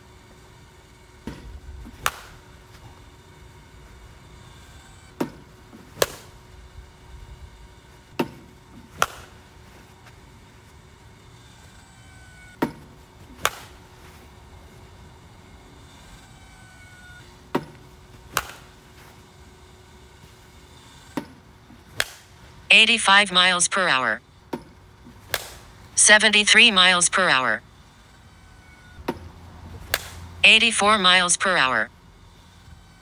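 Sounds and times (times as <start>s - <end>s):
bat cracking against ball: 1.2s - 2.4s, 5.2s - 6.3s, 8.2s - 9.5s, 12.6s - 13.8s, 17.5s - 18.8s, 21.2s - 22.4s, 24.6s - 25.7s, 29.8s - 30.2s.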